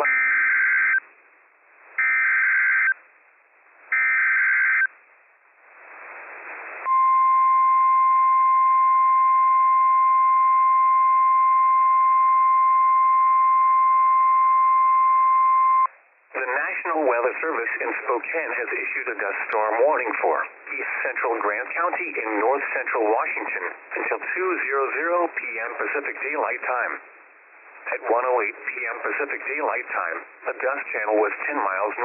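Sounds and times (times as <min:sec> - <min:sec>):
radio hiss: 0:05.7 - 0:07.0, 0:16.3 - 0:32.0.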